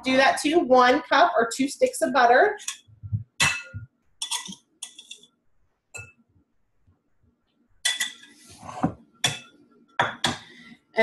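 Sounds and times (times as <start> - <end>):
utensils and bowl clattering: 2.6 - 2.8, 3.4 - 5.3, 7.8 - 10.5.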